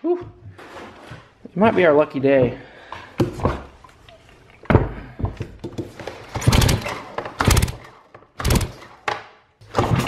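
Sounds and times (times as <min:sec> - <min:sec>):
chainsaw recoil starter pulled: 0:06.2 - 0:08.8.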